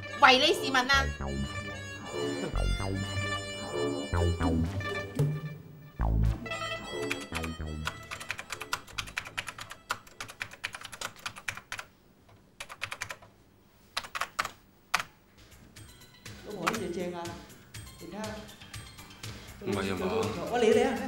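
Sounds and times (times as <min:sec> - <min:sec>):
background music: 0:00.0 - 0:11.0, 0:15.4 - 0:21.0.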